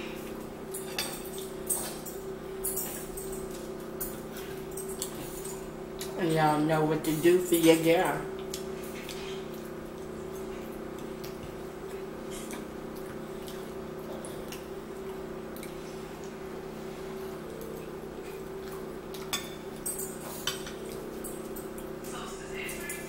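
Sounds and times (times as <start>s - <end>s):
chewing: 8.3s - 23.0s.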